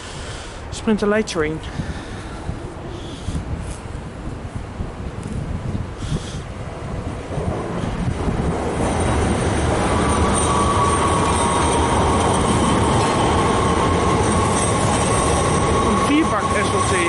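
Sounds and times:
electric train rumbling: 0:01.7 - 0:17.0
train high whine: 0:06.1 - 0:17.0.

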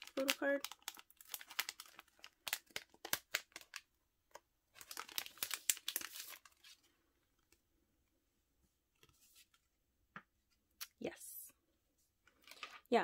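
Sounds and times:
plastic sleeves crinkling: 0:00.0 - 0:07.6, 0:12.2 - 0:13.0.

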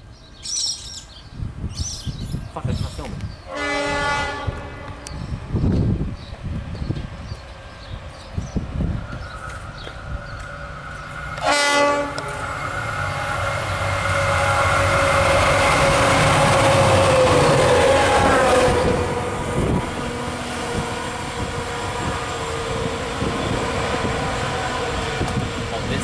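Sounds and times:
diesel locomotive engines passing: 0:02.0 - 0:26.0
locomotive horn blast: 0:03.5 - 0:05.2, 0:11.2 - 0:25.5.

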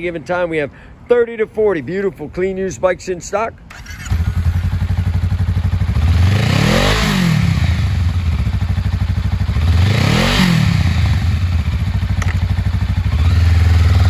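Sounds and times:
motorcycle engine idling and revving: 0:03.7 - 0:14.0.

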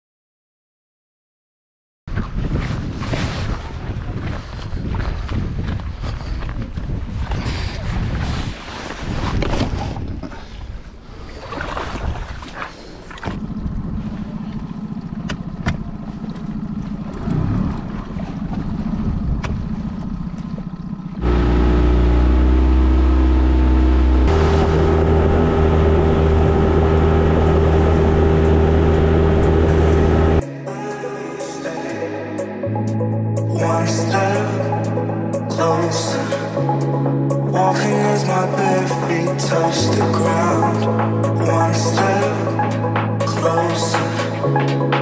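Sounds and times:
wind: 0:02.1 - 0:31.2
water noise: 0:02.1 - 0:32.1
outboard motor humming: 0:12.4 - 0:31.4, 0:32.0 - 0:45.0
music with sustained chords: 0:21.2 - 0:45.0.

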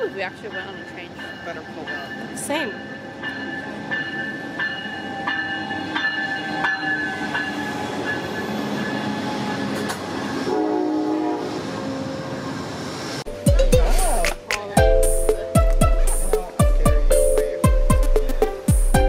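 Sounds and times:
train wheels rumbling on rail: 0:00.0 - 0:13.4.

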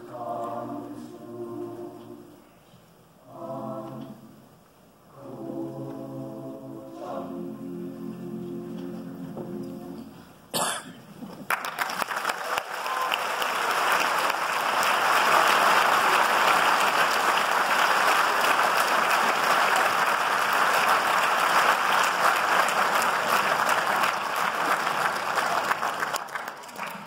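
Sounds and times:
audience applauding: 0:11.4 - 0:27.0.

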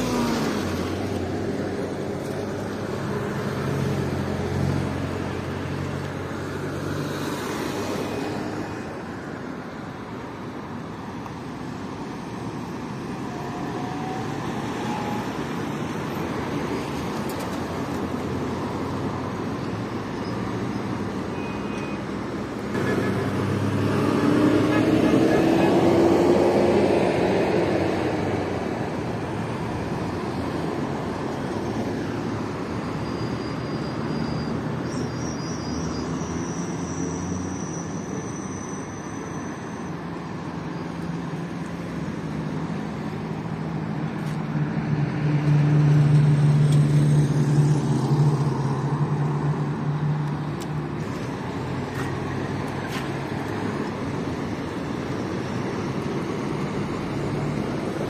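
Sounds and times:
cars passing: 0:00.0 - 0:58.0
vehicle engine passing close: 0:22.7 - 0:28.4.

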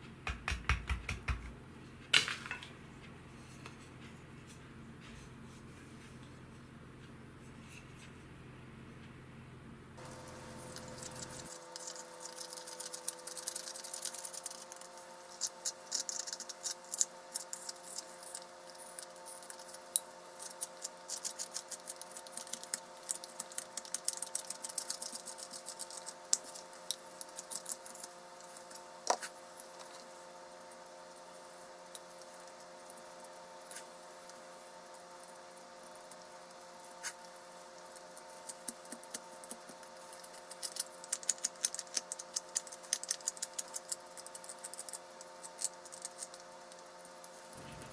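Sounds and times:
faint hum: 0:00.0 - 0:47.9
knife shaving wood: 0:10.0 - 0:47.9.

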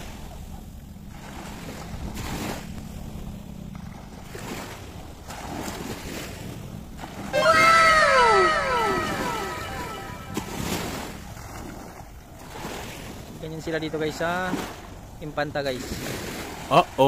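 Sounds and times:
sea surf: 0:07.1 - 0:11.0
overlapping tones sliding downward: 0:07.4 - 0:10.7.

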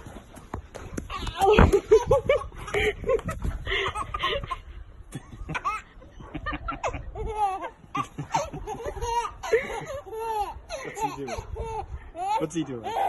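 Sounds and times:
baby giggling: 0:06.6 - 0:13.0.

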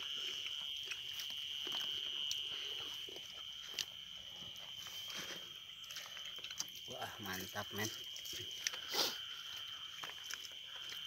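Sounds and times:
hands eating rice rustling: 0:00.0 - 0:11.0
night insects chirring: 0:00.0 - 0:11.0.

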